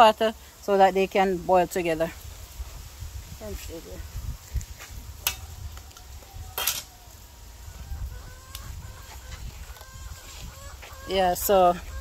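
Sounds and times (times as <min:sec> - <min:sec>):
chickens clucking faintly: 0:05.2 - 0:12.0.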